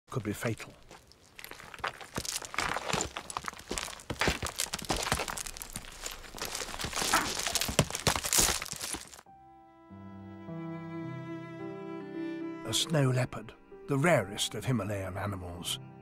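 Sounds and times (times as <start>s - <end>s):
rocks and scree clattering: 0.6s - 9.3s
orchestral string music: 9.3s - 16.0s.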